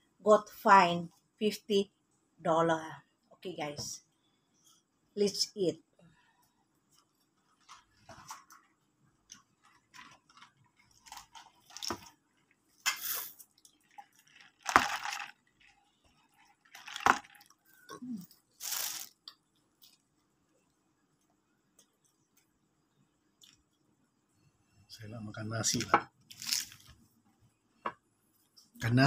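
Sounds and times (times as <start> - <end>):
fried chicken crunching: 9.6 - 12.1, 12.9 - 17.6, 18.6 - 19.3, 26.3 - 27.0.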